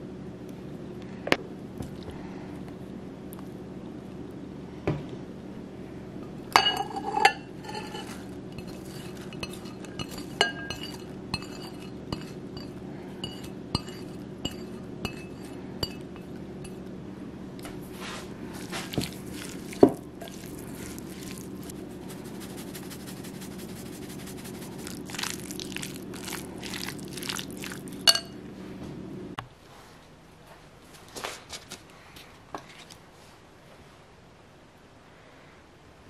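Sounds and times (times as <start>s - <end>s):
steady low hum: 0.0s - 30.8s
chopsticks mixing in glass bowl: 6.6s - 16.8s, 18.5s - 28.3s
light clinks against glass bowl: 6.6s - 16.8s, 28.0s - 28.4s.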